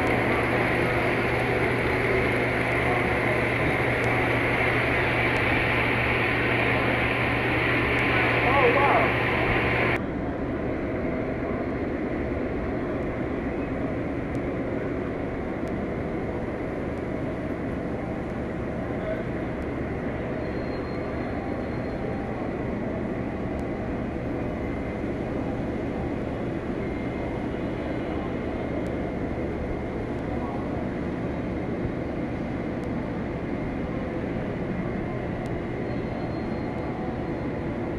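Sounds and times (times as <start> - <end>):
model train wheels rumbling on track: 0.0 - 10.0
hall hum: 0.0 - 20.3.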